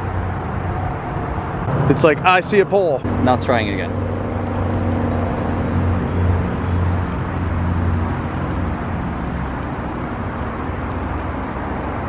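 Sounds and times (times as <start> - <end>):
low engine hum: 0.0 - 12.0
traffic noise: 0.0 - 12.0.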